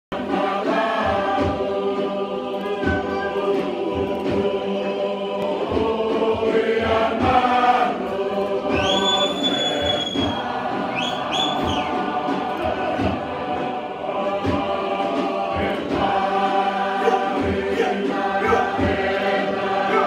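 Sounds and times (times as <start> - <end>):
group singing together: 0.1 - 20.0
low thuds keeping beat: 0.1 - 20.0
high held whistle: 8.7 - 12.0.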